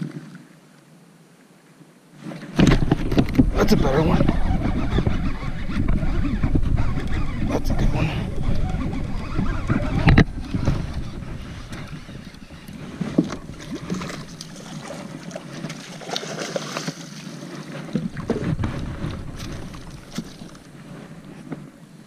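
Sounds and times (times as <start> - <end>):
water sloshing: 2.3 - 21.5
fish thrashing and splashing: 8.4 - 20.7.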